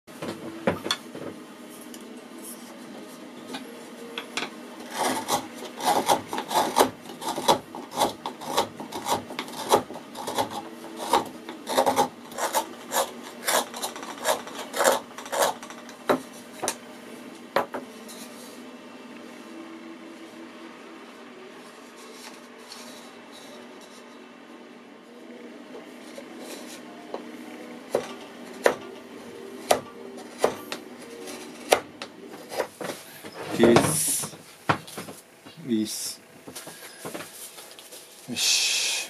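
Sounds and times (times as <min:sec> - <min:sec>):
carving tool scraping wood: 0:04.8 - 0:16.2, 0:29.6 - 0:31.8.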